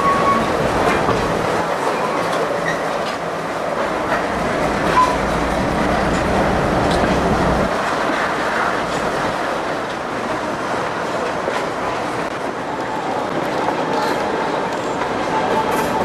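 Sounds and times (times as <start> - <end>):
train car rumbling and rattling: 0.0 - 16.0.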